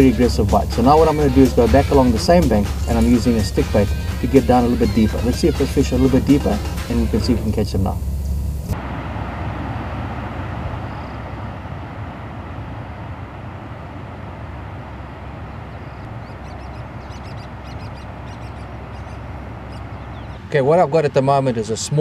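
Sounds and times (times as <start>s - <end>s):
low rumble: 0.0s - 20.5s
outdoor rushing noise: 0.0s - 22.0s
faint high bird chirps: 10.8s - 11.5s, 15.7s - 20.5s.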